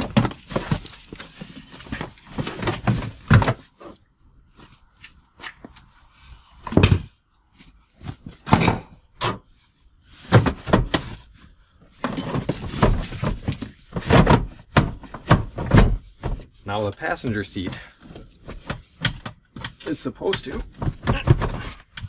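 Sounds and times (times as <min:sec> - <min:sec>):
scraping and rustling: 0:00.0 - 0:04.0.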